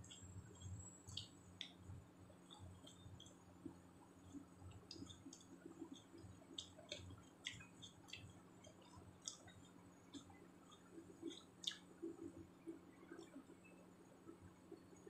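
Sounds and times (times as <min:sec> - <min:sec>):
chewing raw vegetables: 0:04.3 - 0:12.4.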